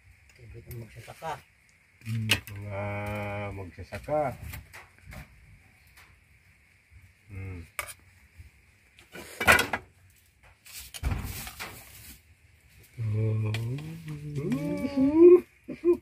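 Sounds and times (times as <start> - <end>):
short voice-like call: 13.0 - 16.0.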